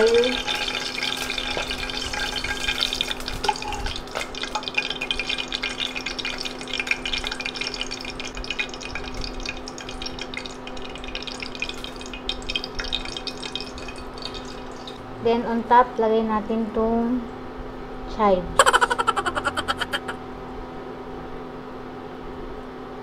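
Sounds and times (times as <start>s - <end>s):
hot oil sizzling and crackling: 0.0s - 15.2s.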